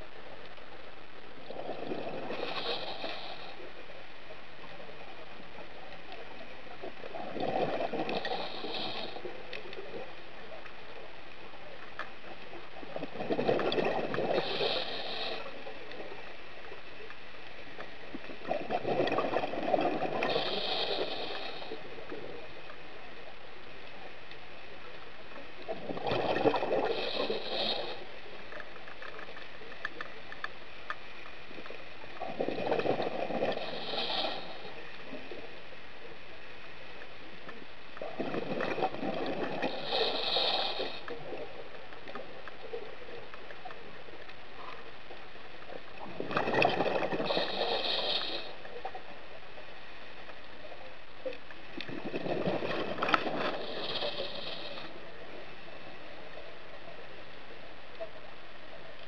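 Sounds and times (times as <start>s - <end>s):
gurgling rush of bubbles: 1.4s - 3.6s, 6.8s - 9.2s, 12.8s - 15.6s, 18.1s - 21.9s, 25.6s - 28.1s, 31.6s - 35.4s, 38.0s - 41.5s, 45.9s - 48.6s, 51.8s - 55.0s
diver breathing through regulator: 1.6s - 3.8s, 7.3s - 9.3s, 13.3s - 15.7s, 18.8s - 22.0s, 25.9s - 28.2s, 32.4s - 34.8s, 38.6s - 41.4s, 46.5s - 48.7s, 52.3s - 55.0s.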